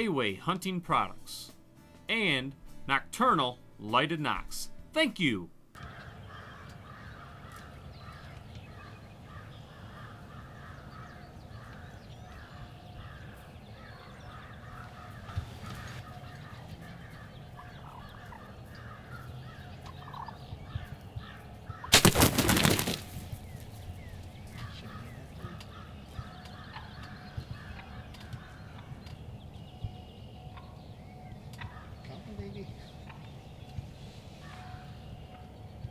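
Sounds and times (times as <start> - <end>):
turkeys calling: 5.8 - 35.9.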